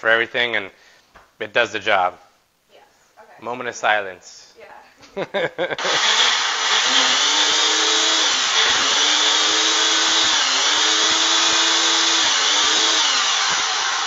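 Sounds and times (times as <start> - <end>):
blender motor running: 5.8 - 14.0.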